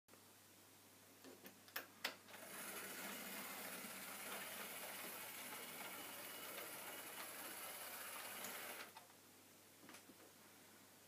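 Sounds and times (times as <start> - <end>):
model train wheels on track: 2.4 - 9.0.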